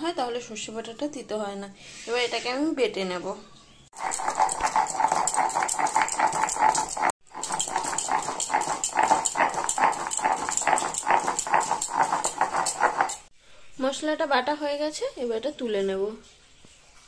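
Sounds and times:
stone pestle grinding on stone: 3.9s - 13.3s.

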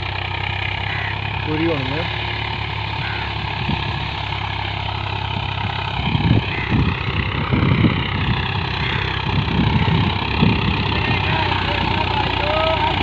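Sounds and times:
tractor diesel engine under load: 0.0s - 13.0s
uneven low rumbles: 0.0s - 13.0s.

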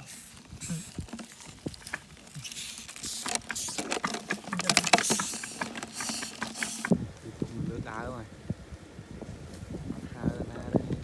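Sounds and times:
dry plant debris rustling: 0.0s - 7.0s.

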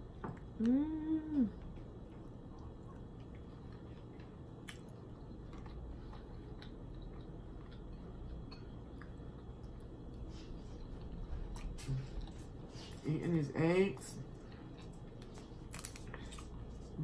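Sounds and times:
wet chewing: 1.6s - 13.0s.

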